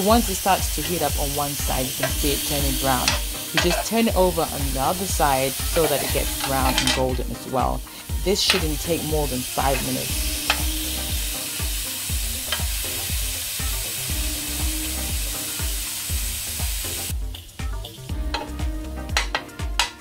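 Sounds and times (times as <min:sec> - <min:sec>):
background music with low beat: 0:00.0 - 0:20.0
halloumi sizzling on grill pan: 0:00.0 - 0:20.0
metal utensil clicking on pan: 0:01.9 - 0:04.1, 0:04.9 - 0:07.2, 0:08.4 - 0:10.7, 0:12.4 - 0:12.7, 0:18.3 - 0:20.0.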